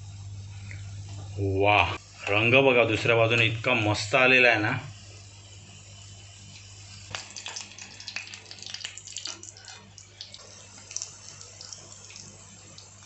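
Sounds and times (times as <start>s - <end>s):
oil sizzling and crackling: 5.0s - 13.0s.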